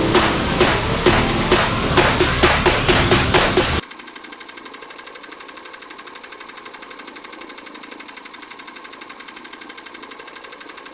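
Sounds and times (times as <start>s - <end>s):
film projector clattering: 3.8s - 10.9s.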